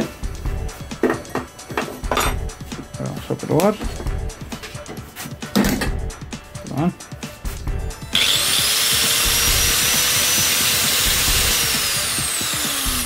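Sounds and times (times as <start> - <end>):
angle grinder whining: 8.0 - 13.0.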